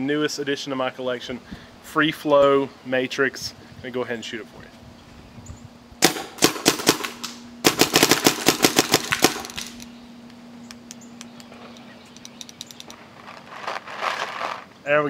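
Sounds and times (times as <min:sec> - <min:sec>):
paintball marker firing: 0:06.0 - 0:09.9
faint low hum: 0:07.1 - 0:15.0.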